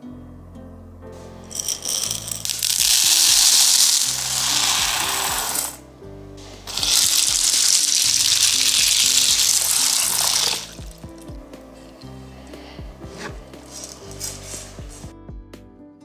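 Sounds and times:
soft background music: 0:00.0 - 0:16.0
lentils pouring into a saucepan: 0:01.4 - 0:05.8, 0:06.4 - 0:11.2, 0:13.6 - 0:15.0
water pouring into a pan: 0:01.5 - 0:05.8, 0:06.6 - 0:11.2.

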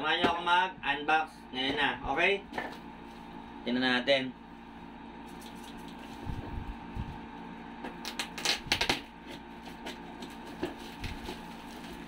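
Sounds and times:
plastic wrap crackling: 0:10.2 - 0:12.0.

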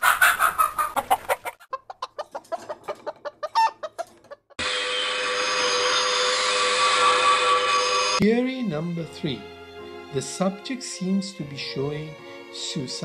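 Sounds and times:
chicken squawking and clucking: 0:00.0 - 0:04.6.

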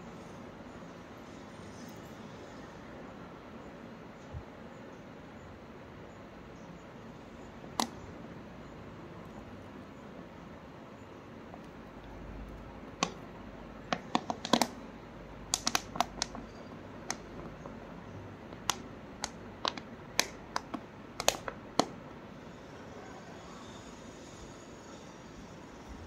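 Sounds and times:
plastic bottle crackling: 0:13.9 - 0:14.8, 0:15.5 - 0:17.6, 0:18.6 - 0:21.9.

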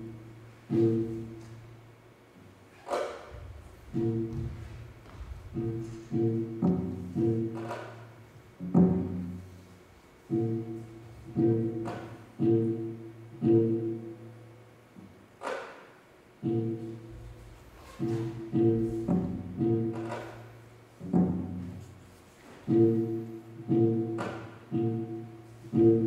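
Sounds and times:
slow plucked string notes: 0:00.0 - 0:01.5, 0:03.9 - 0:04.6, 0:05.5 - 0:09.4, 0:10.3 - 0:14.5, 0:16.4 - 0:17.3, 0:18.0 - 0:21.7, 0:22.7 - 0:26.0.

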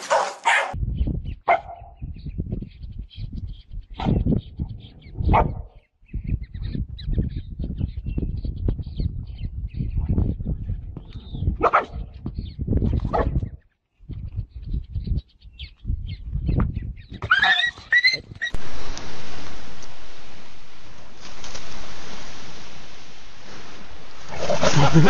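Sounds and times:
dog barking: 0:00.0 - 0:00.8, 0:01.5 - 0:01.9, 0:11.6 - 0:12.1, 0:13.1 - 0:13.4
steady low rumbling: 0:02.0 - 0:15.2, 0:18.5 - 0:25.0.

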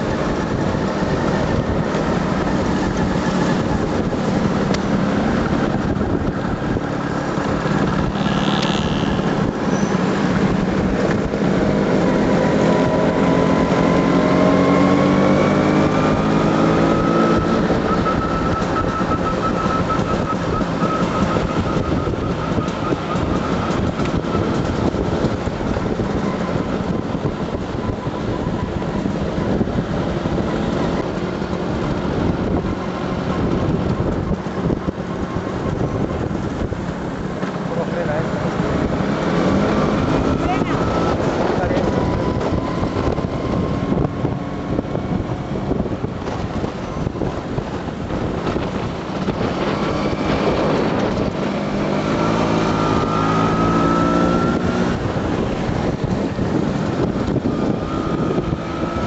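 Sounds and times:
motor scooter engine running: 0:00.0 - 0:16.7.

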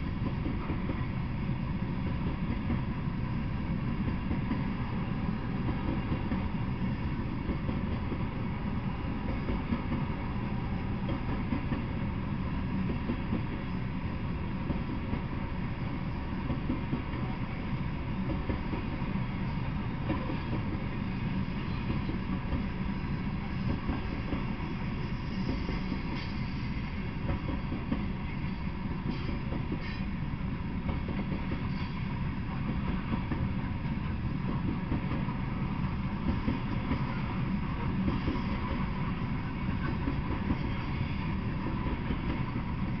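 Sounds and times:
freight train rumbling past: 0:00.0 - 0:43.0.

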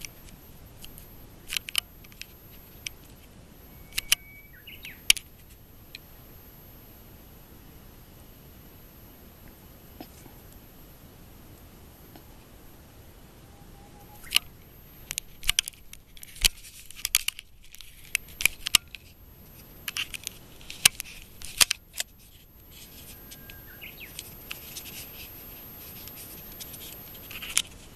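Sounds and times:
sharp clicks and snaps: 0:00.0 - 0:03.3, 0:03.9 - 0:06.1, 0:14.2 - 0:27.8
faint steady hiss: 0:00.0 - 0:27.9.

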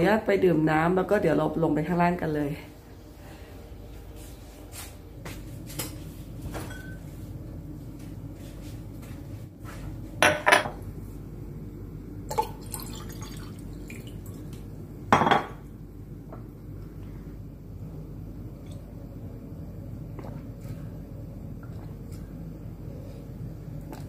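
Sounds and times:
glass clinking on a counter: 0:06.6 - 0:07.0, 0:10.2 - 0:10.8, 0:15.1 - 0:15.6
water pouring into a glass: 0:12.3 - 0:14.6.

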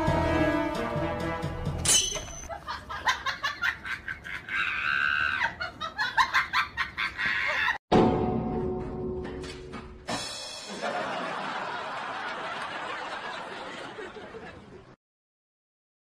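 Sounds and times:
background music: 0:00.0 - 0:02.4, 0:07.9 - 0:11.4.

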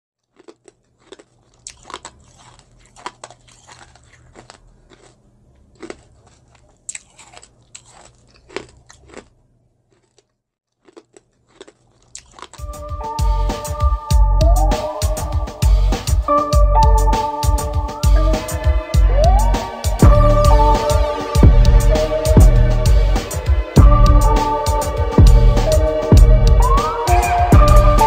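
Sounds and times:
crunchy chewing: 0:00.2 - 0:12.8
faint low hum: 0:00.5 - 0:10.3
music: 0:12.6 - 0:28.0.

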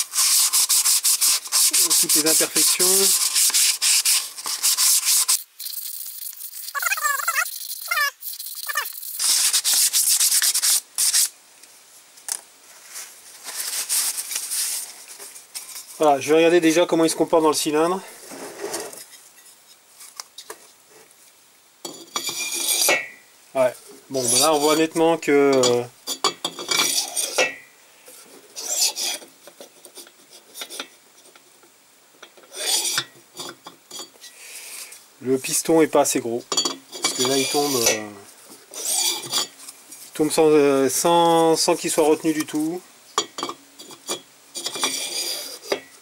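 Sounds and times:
piston scraping in cylinder: 0:00.0 - 0:11.3, 0:21.9 - 0:23.0, 0:25.6 - 0:27.5, 0:28.6 - 0:31.4, 0:32.5 - 0:34.2, 0:36.6 - 0:39.6, 0:43.4 - 0:45.9
sandpaper rubbing on metal: 0:00.0 - 0:11.3, 0:13.4 - 0:14.9, 0:24.2 - 0:24.9, 0:28.6 - 0:29.2, 0:37.1 - 0:38.0, 0:38.7 - 0:39.4, 0:44.6 - 0:45.7.

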